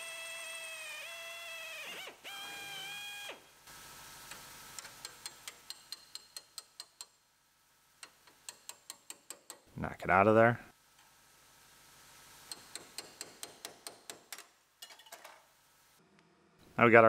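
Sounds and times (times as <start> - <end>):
pneumatic drill spinning: 0.0 - 3.4.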